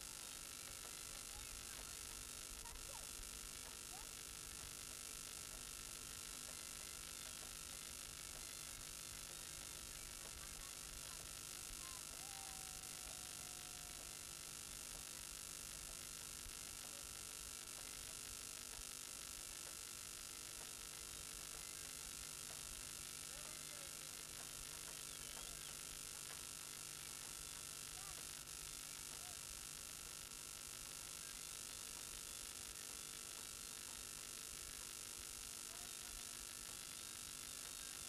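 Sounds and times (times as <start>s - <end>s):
faint distant sounds: 0.0s - 30.2s
background hiss: 0.0s - 38.0s
electrical hum: 0.0s - 38.0s.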